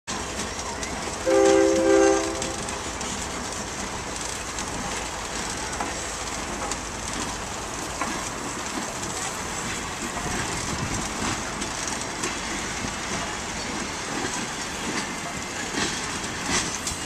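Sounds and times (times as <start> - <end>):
train rumbling and clattering past: 0.1 - 17.0
train horn chord blasts: 1.2 - 2.8.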